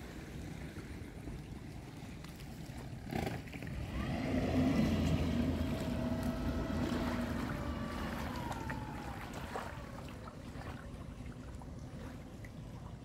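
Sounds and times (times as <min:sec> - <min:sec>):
motor vehicle passing by: 0:03.0 - 0:10.9.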